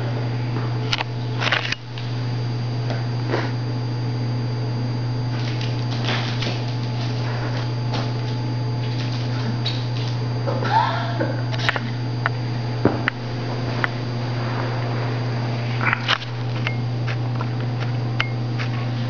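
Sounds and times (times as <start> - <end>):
low electrical hum: 0.0 - 19.0
owl wings fluttering: 5.3 - 10.2.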